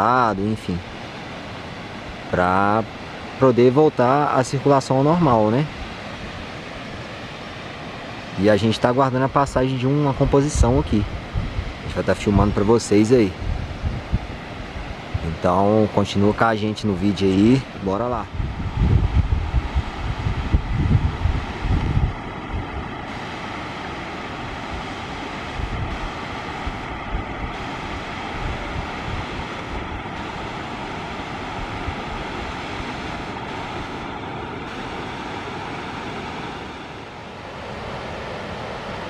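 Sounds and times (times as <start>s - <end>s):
water rushing down waterfall: 0.0s - 39.0s
wind buffeting microphone: 10.5s - 12.6s, 13.3s - 15.4s, 18.1s - 37.0s.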